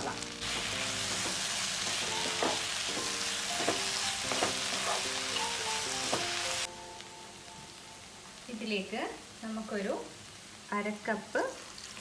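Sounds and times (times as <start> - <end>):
masala sizzling in a pan: 0.0 - 12.0
spatula scraping and knocking pan: 0.6 - 5.3.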